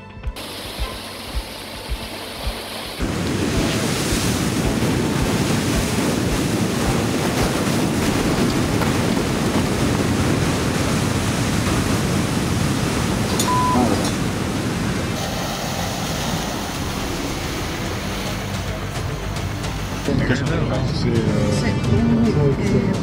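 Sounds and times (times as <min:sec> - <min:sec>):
soft low thumps: 0:00.2 - 0:10.5
surf breaking over rocks: 0:00.4 - 0:22.7
wind buffeting microphone: 0:00.8 - 0:13.4.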